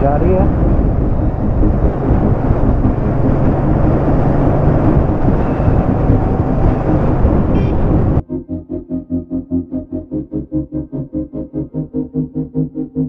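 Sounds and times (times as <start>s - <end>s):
motorcycle engine running: 0.0s - 8.2s
wind buffeting microphone: 0.0s - 8.2s.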